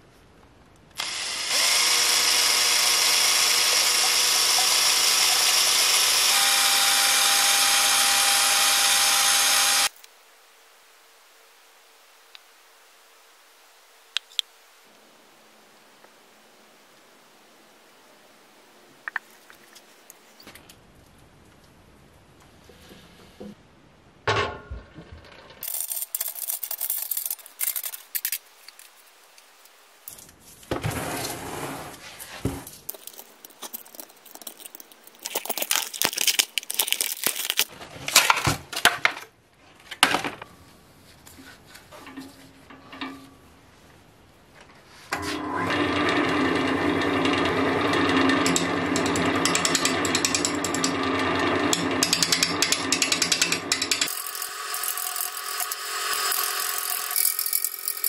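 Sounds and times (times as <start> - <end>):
gouge cutting on lathe: 1.0 - 9.9
wood lathe spinning: 1.0 - 9.9, 45.2 - 58.0
plastic mold peeled off: 32.6 - 38.4.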